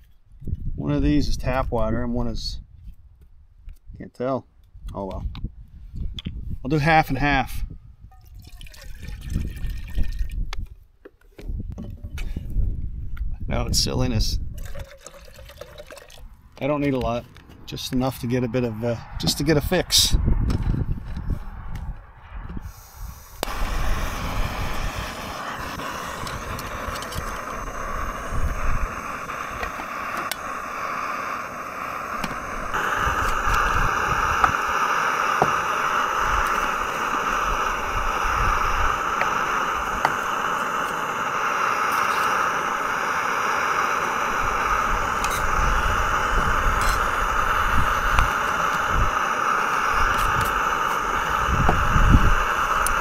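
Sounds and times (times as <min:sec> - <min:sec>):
wind buffeting microphone: 0:00.3 - 0:04.0, 0:04.7 - 0:06.8, 0:07.4 - 0:10.8, 0:11.4 - 0:14.9, 0:18.4 - 0:30.9, 0:32.1 - 0:40.5, 0:44.2 - 0:53.0
gas stove burner hissing: 0:22.6 - 0:53.0.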